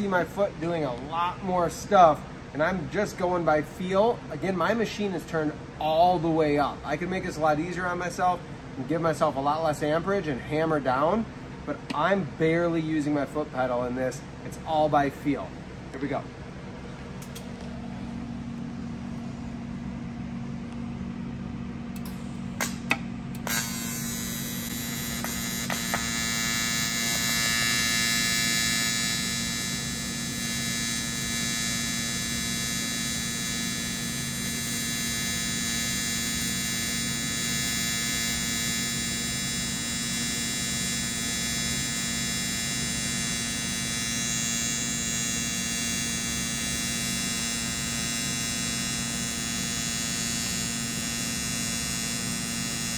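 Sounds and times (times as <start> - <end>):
welding arc buzz: 16.7 - 52.9.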